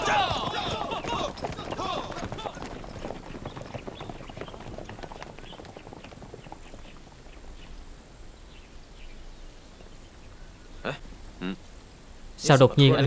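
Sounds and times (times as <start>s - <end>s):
horse hooves clip-clopping: 0.0s - 8.9s.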